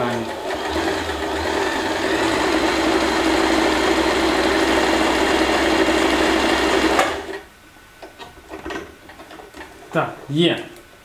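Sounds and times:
sewing machine running: 0:00.0 - 0:07.4.

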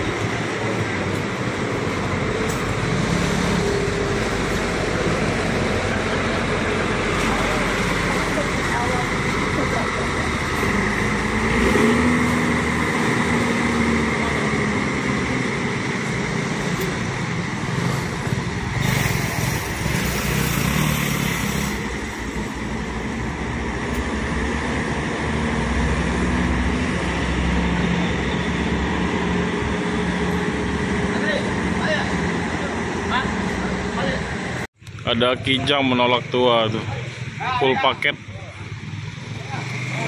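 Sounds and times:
bus diesel engine running: 0:00.0 - 0:40.0
hiss: 0:18.8 - 0:22.0.

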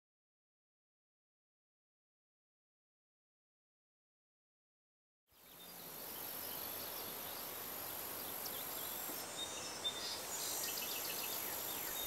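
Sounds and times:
faint bird chirps: 0:05.3 - 0:12.0.

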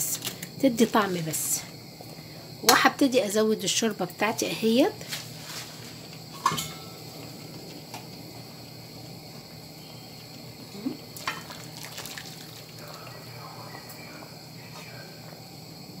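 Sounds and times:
faint steady hiss: 0:00.0 - 0:16.0
broth pouring and splashing: 0:11.2 - 0:13.0.

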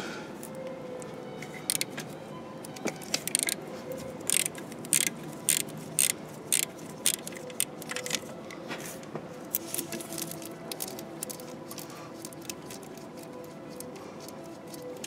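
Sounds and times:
ratchet wrench clicking: 0:01.6 - 0:01.9, 0:03.0 - 0:03.6, 0:04.2 - 0:08.3, 0:09.5 - 0:15.0.

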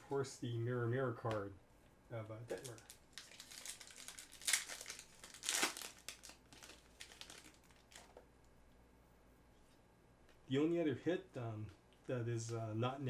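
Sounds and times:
foil wrapper crinkling: 0:02.5 - 0:08.2.

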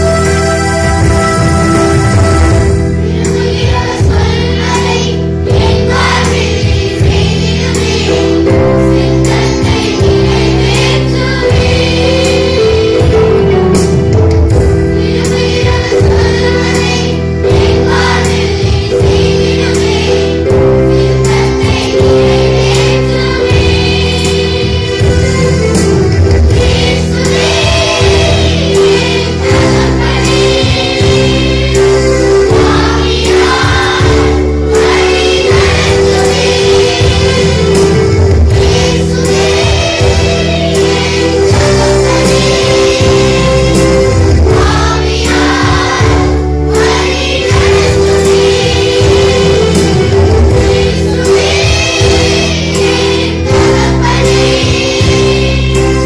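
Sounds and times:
choir singing: 0:00.0 - 0:13.9, 0:14.6 - 0:56.0
instrumental accompaniment with bass: 0:00.0 - 0:56.0.

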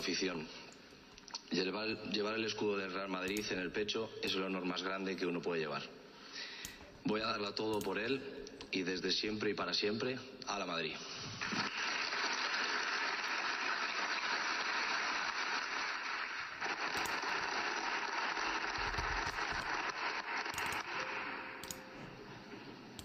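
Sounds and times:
audience applauding: 0:11.4 - 0:21.4.

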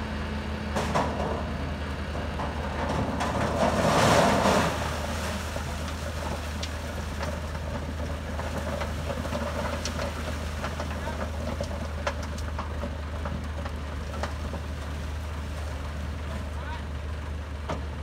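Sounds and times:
harvester engine running: 0:00.0 - 0:18.0
crackles: 0:04.0 - 0:16.0.

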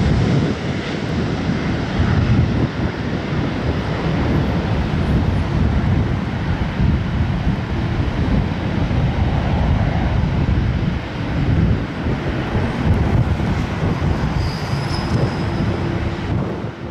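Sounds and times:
jet engines rumbling: 0:00.0 - 0:16.9
faint high whistle: 0:14.4 - 0:15.6.

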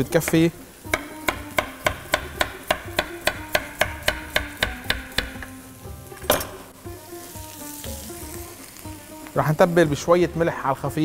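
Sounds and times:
knife chopping on wooden board: 0:00.3 - 0:05.5.

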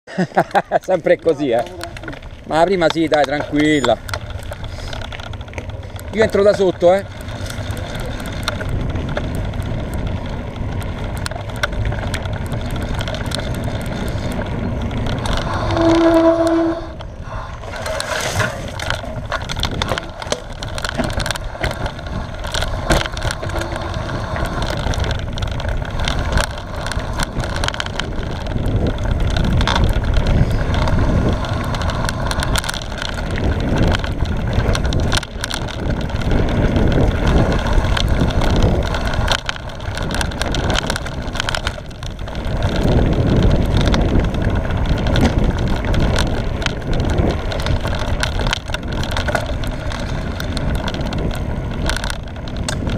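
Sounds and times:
bike chain and frame rattling: 0:00.1 - 0:52.9
bike tyres rumbling over dirt: 0:00.1 - 0:52.9
wind buffeting microphone: 0:01.0 - 0:52.9.

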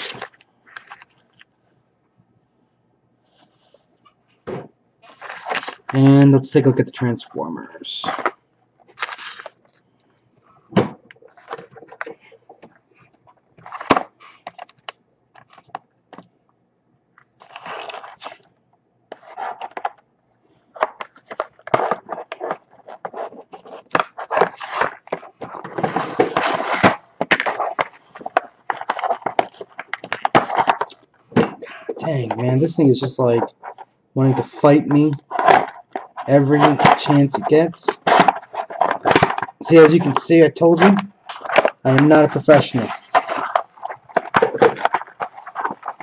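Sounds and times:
packaging rustling and clicking: 0:00.0 - 0:01.5, 0:05.0 - 0:06.2, 0:08.0 - 0:09.8, 0:10.8 - 0:16.3, 0:17.2 - 0:18.5, 0:20.7 - 0:46.0
packaging tearing and crackling: 0:08.9 - 0:09.6, 0:17.4 - 0:18.4, 0:20.9 - 0:31.0, 0:35.2 - 0:40.2, 0:40.8 - 0:46.0.

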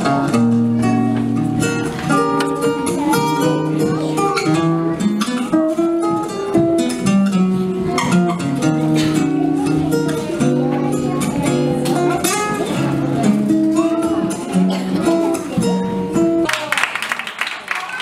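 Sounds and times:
acoustic guitar playing: 0:00.0 - 0:16.5.

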